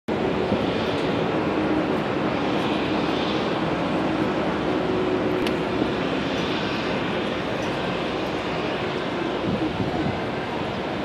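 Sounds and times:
jet engine rumble and hiss: 0.1s - 11.0s.

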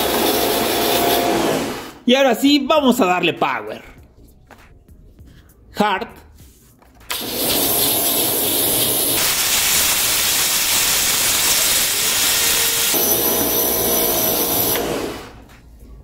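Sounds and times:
pressure washer motor whine: 0.0s - 2.0s, 7.1s - 15.4s
pressure washer water jet hissing: 7.1s - 15.4s.

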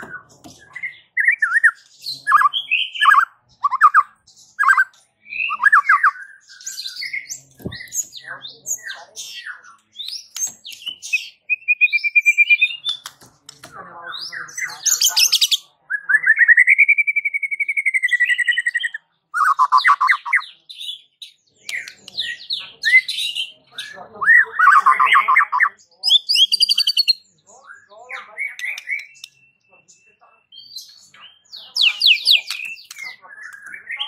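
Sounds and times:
bird singing varied song: 0.0s - 34.0s.

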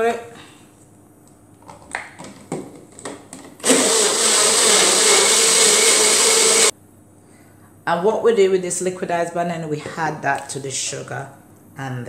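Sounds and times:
blender running: 3.6s - 6.7s.

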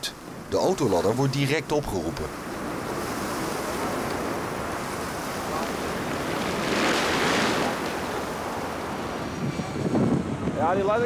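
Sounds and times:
wind rushing: 2.3s - 11.0s.

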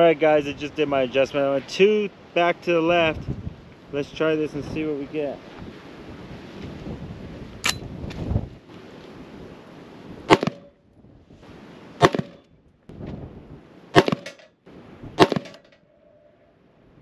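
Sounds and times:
rifle shots: 10.3s - 10.7s, 12.0s - 12.4s, 13.9s - 14.4s, 15.2s - 15.8s.

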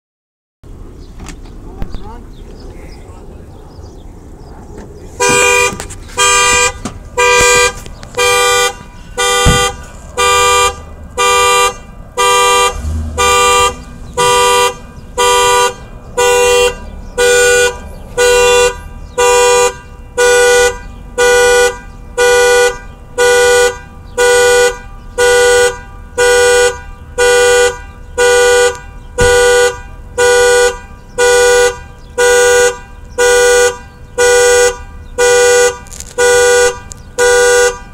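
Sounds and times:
car horn honking: 5.2s - 37.9s.

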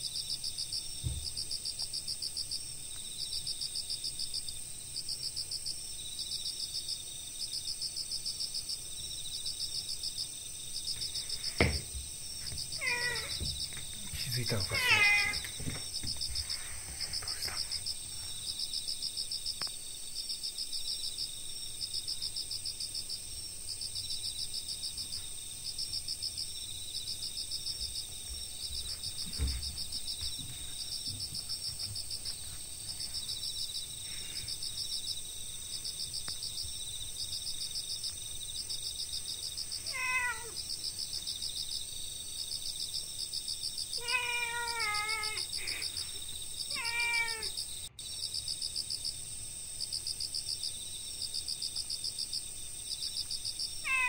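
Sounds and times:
crickets and insects chirping: 0.0s - 54.0s
soft thump: 1.0s - 1.4s, 11.0s - 12.7s, 29.2s - 31.3s
cat meowing: 12.8s - 13.5s, 14.4s - 15.8s, 39.8s - 40.6s, 44.0s - 45.9s, 46.7s - 47.5s, 53.8s - 54.0s.

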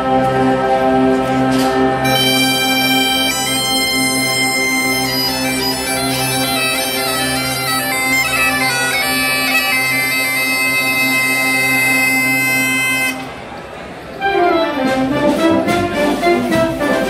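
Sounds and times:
bagpipe drone: 0.0s - 13.3s
bagpipes playing folk melody: 2.0s - 13.3s.

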